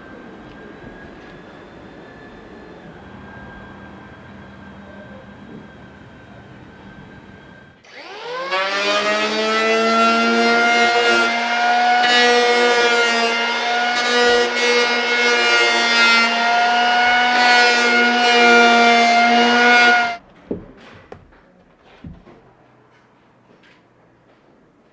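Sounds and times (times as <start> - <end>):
electric hand planer cutting wood: 7.8 - 20.2.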